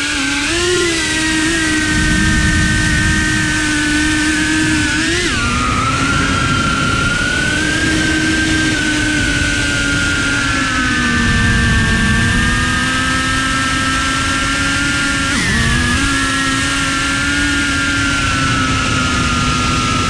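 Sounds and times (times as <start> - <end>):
drone propellers whining: 0.0 - 20.0.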